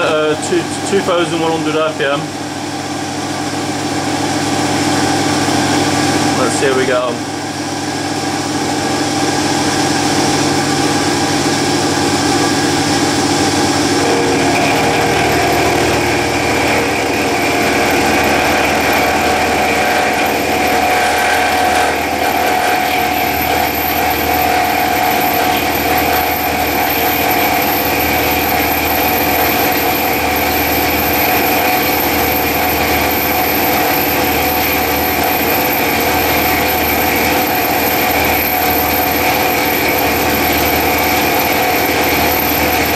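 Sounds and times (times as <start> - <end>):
mill drill cutting metal: 9.5 - 42.9.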